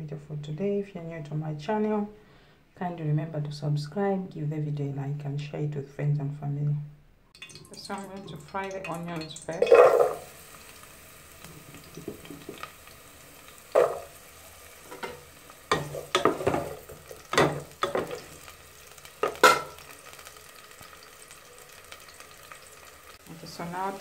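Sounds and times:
onions sizzling in hot oil: 0:07.4 - 0:24.0
wooden spoon scraping a pot: 0:14.8 - 0:18.3.

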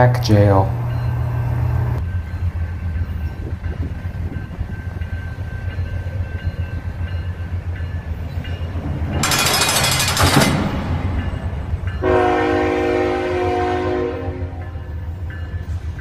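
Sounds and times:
diesel locomotive rumbling: 0:00.0 - 0:16.0
loud harsh burst: 0:08.8 - 0:11.1.

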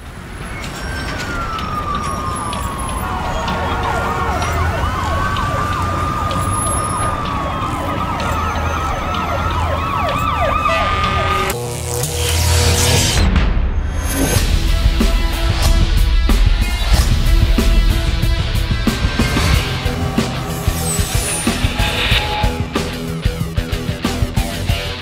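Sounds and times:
emergency sirens wailing: 0:00.0 - 0:11.6, 0:14.7 - 0:25.0
siren yelping sweeps: 0:00.4 - 0:11.6, 0:19.1 - 0:23.4
steady low rumble: 0:14.4 - 0:24.0.

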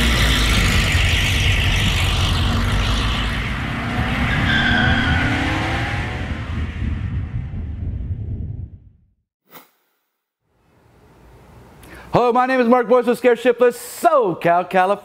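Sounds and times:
tire squeal: 0:00.0 - 0:07.0
car engine revving: 0:00.0 - 0:07.9.

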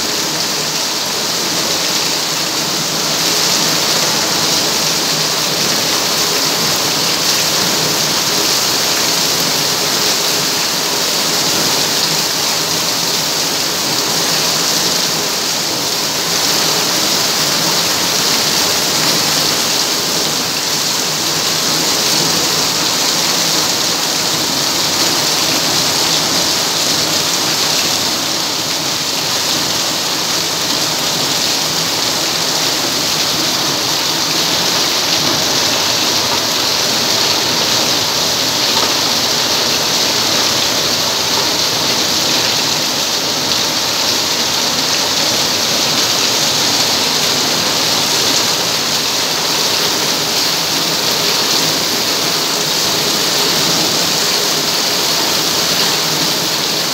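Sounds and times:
heavy rain on paved ground: 0:00.0 - 0:56.9.

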